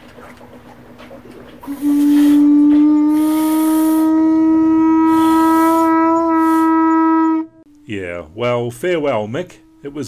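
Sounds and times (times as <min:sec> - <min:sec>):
conch shell trumpet note: 0:01.6 - 0:07.8.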